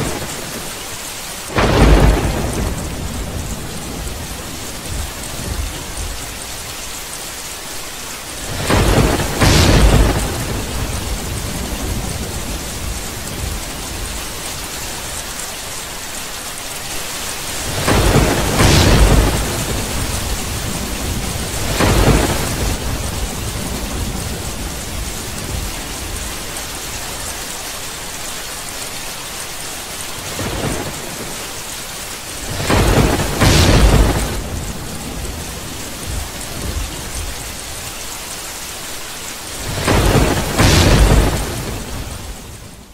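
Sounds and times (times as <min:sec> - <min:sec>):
thunder rumbling: 0:00.0 - 0:00.8, 0:01.5 - 0:06.8, 0:08.3 - 0:15.4, 0:17.4 - 0:27.4, 0:30.2 - 0:31.5, 0:32.3 - 0:38.2, 0:39.5 - 0:42.9
steady rain hissing: 0:00.0 - 0:42.9.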